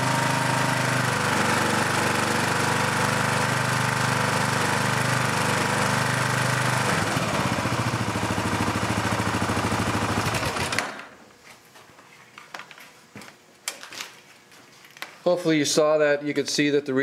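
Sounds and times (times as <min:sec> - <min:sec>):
single-cylinder engine running: 0:00.0 - 0:11.1.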